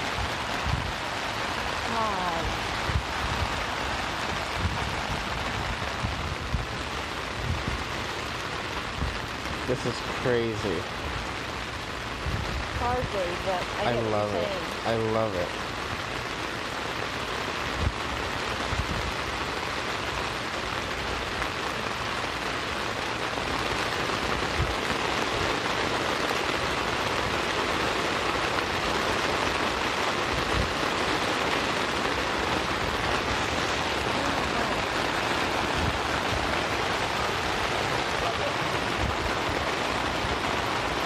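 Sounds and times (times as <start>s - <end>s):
rain falling on a tent: 0.0s - 41.0s.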